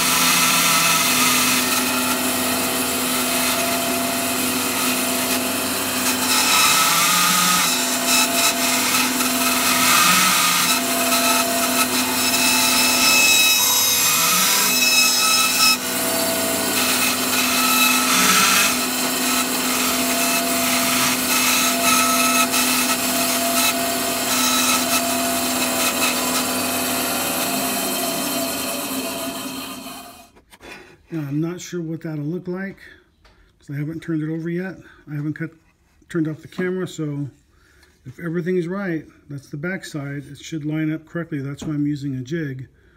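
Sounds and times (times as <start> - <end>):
bandsaw motor humming: 0.0 - 30.2
bandsaw cutting wood and brass: 0.0 - 30.4.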